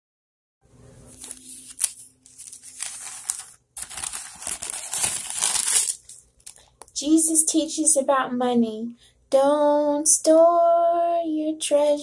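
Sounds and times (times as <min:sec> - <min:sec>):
handling noise rustling and clicks: 0:01.1 - 0:06.9.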